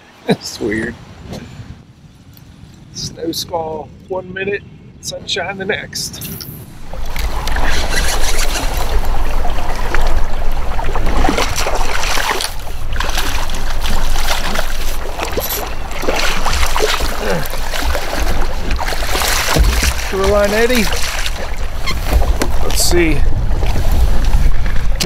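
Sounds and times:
wind buffeting microphone: 0.7s - 25.0s
river water rushing: 6.7s - 23.6s.

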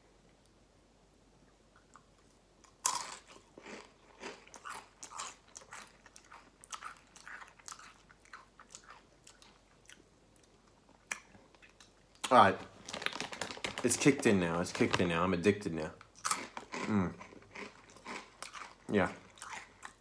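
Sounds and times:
chewing with short crunches: 1.8s - 12.3s, 16.1s - 20.0s
person crunching a tortilla chip: 2.6s - 10.0s, 12.8s - 14.1s, 16.2s - 20.0s.

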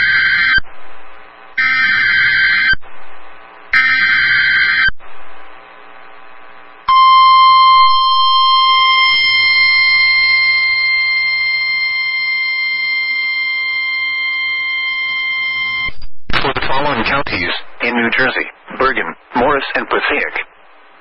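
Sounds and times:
steady alarm tone: 0.0s - 0.7s, 1.5s - 2.9s, 3.7s - 5.0s, 6.8s - 15.9s.

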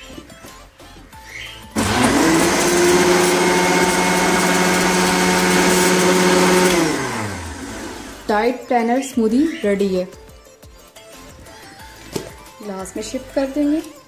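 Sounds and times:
blender motor whining: 1.8s - 8.3s.

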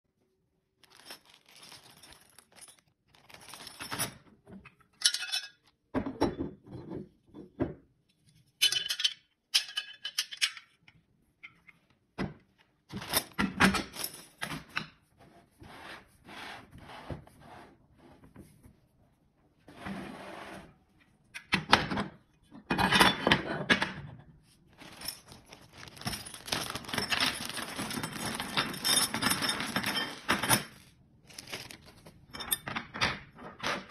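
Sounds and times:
plastic bag rustling: 0.8s - 4.0s, 24.7s - 32.3s.

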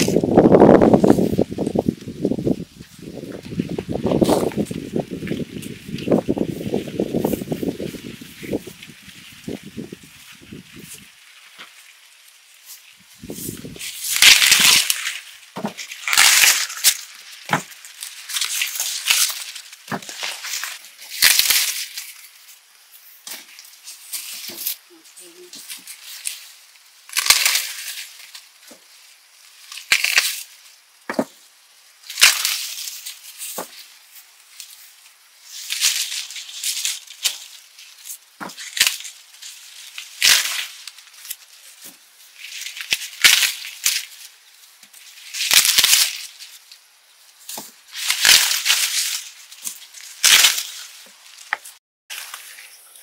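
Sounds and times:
corn ears snapping off stalks: 0.0s - 2.1s, 2.8s - 22.3s, 23.2s - 26.4s, 27.1s - 31.4s, 32.0s - 34.8s, 35.5s - 46.8s, 47.4s - 52.6s
corn husks rustling and crackling: 0.0s - 53.0s.

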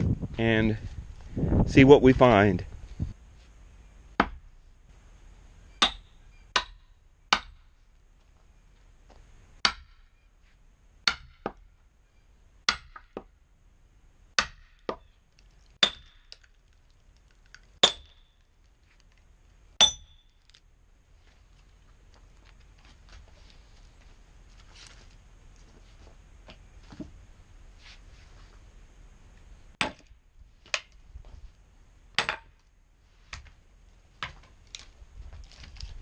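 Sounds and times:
sledgehammer striking steel wedge: 4.2s - 4.4s, 5.8s - 7.6s, 9.6s - 10.1s, 11.0s - 11.6s, 12.7s - 13.2s, 14.4s - 15.0s, 15.8s - 16.3s, 17.8s - 18.2s, 19.8s - 20.3s, 32.2s - 32.6s.

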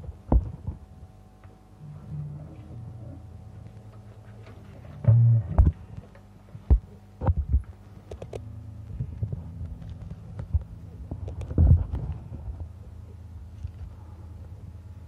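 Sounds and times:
low electrical hum: 0.0s - 15.0s
heavy low thumps: 5.0s - 5.9s.

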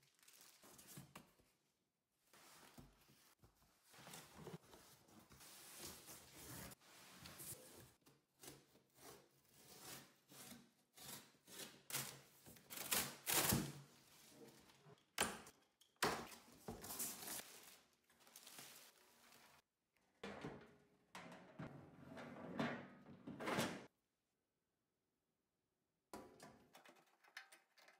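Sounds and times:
cardboard and plastic rustling: 16.3s - 19.6s.

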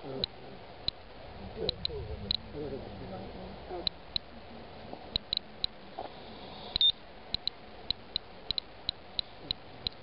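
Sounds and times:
geiger counter clicking: 1.6s - 2.5s, 3.8s - 4.3s, 5.1s - 5.8s, 6.7s - 10.0s.

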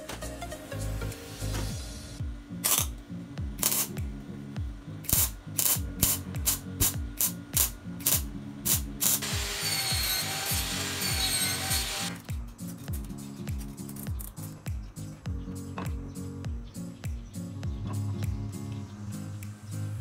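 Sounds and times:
welder crackling: 0.0s - 4.2s, 5.0s - 14.7s
music with thumping beat: 0.0s - 19.6s.

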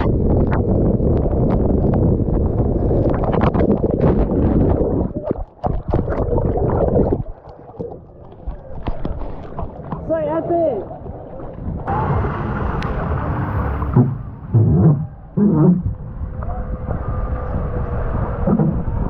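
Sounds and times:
wind buffeting a camera: 0.0s - 10.0s, 13.9s - 19.0s
underwater gurgling and bubbling: 0.0s - 10.1s, 13.6s - 19.0s.

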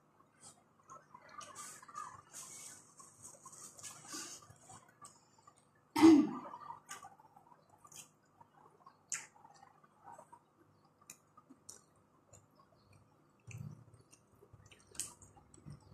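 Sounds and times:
chewing and lip smacks: 8.8s - 10.4s, 11.0s - 15.9s.

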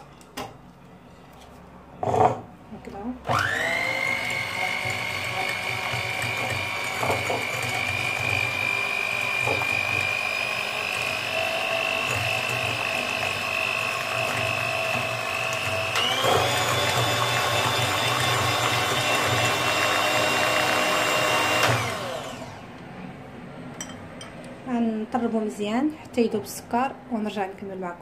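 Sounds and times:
electric hand mixer whining: 3.3s - 22.7s.

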